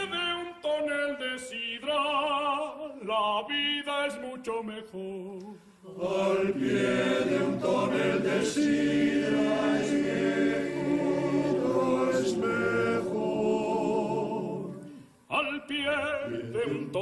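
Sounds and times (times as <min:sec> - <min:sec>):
male choir singing in harmony: 0:05.8 - 0:17.0.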